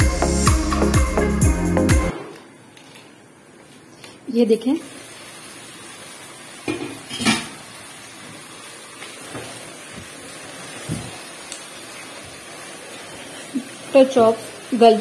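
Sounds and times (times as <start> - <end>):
gravy simmering hiss: 3.8 - 15.0.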